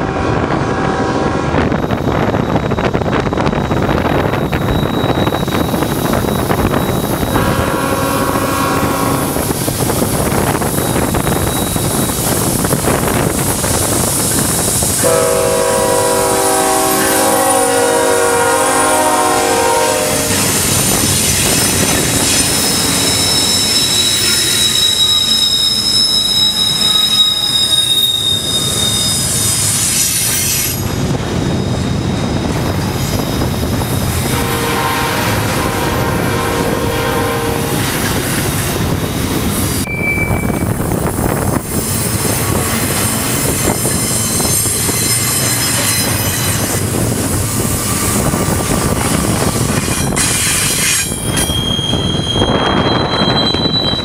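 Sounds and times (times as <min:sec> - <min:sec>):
locomotive horn blasts: 0:00.0 - 0:01.8, 0:07.3 - 0:09.5, 0:15.0 - 0:20.6, 0:34.2 - 0:38.0
wind noise: 0:00.0 - 0:54.0
high-pitched wheel squeal: 0:01.6 - 0:33.9, 0:39.8 - 0:54.0.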